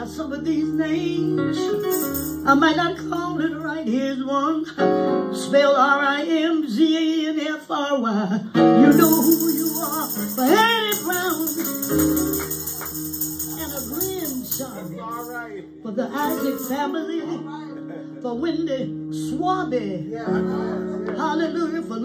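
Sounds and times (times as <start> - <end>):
keyboard and guitar accompaniment: 0.0 - 7.1, 8.5 - 22.0
woman singing gospel song: 0.0 - 12.0, 15.8 - 17.4, 21.1 - 22.0
high jingling: 1.8 - 2.6, 8.9 - 15.5, 16.2 - 17.0.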